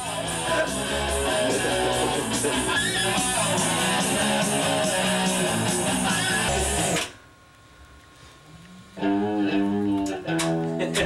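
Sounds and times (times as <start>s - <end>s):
rock band music: 0.0s - 7.0s.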